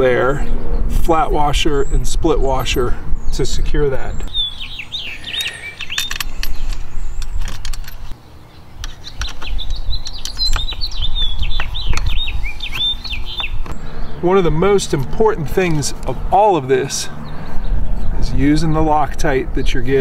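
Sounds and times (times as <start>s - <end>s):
steady low rumble: 0.0s - 5.4s, 10.8s - 20.0s
small bird chirping: 4.0s - 14.2s.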